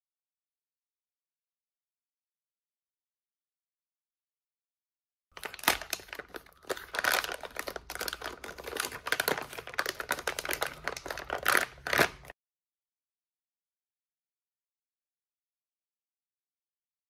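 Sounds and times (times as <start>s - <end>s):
plastic packaging crinkling: 5.4s - 12.3s.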